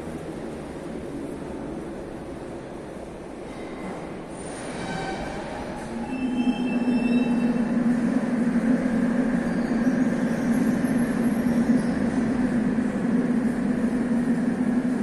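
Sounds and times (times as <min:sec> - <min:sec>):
metro train rumbling: 0:00.0 - 0:15.0
high squealing tones: 0:06.0 - 0:08.0.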